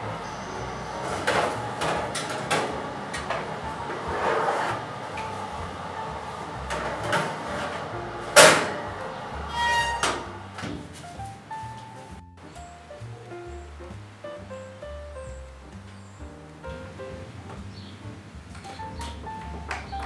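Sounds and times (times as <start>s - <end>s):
baking tins clunking on oven racks: 1.0s - 4.6s, 6.6s - 8.8s.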